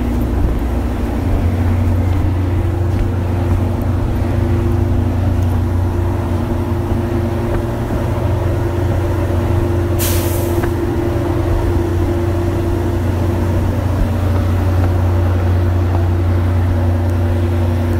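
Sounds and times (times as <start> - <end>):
diesel train engine idling: 0.0 - 17.9
air brake hiss: 10.0 - 10.7.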